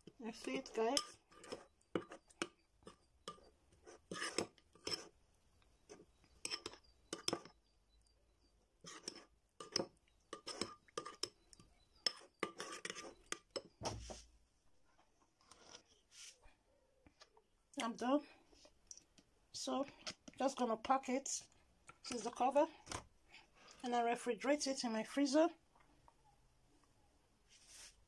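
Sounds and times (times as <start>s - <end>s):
spoon clinking against a bowl: 0.9s - 3.5s, 6.4s - 7.5s, 8.9s - 13.8s.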